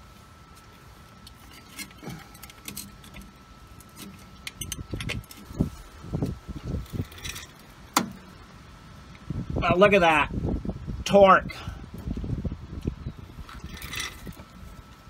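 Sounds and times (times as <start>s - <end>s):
metal tools clinking: 1.3s - 5.6s, 6.8s - 7.7s, 13.5s - 14.5s.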